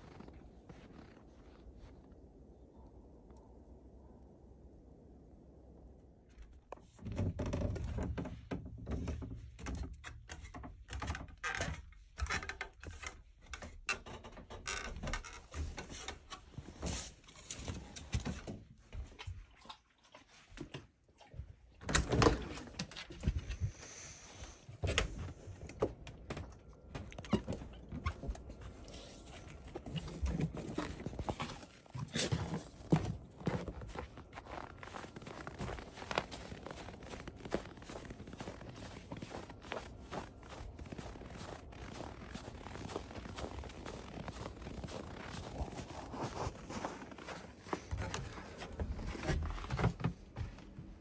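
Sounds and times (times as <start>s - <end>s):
footsteps on wooden floor: 24.8s - 51.0s.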